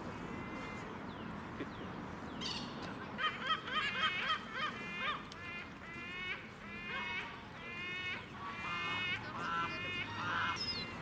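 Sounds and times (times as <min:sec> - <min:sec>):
waterbirds honking calls: 0:02.4 - 0:11.0.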